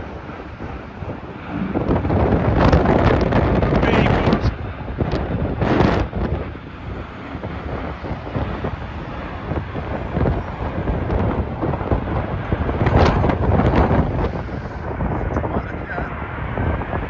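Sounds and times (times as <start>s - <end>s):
jet airliner rumble overhead: 0.0s - 17.0s
wind buffeting microphone: 0.0s - 17.0s.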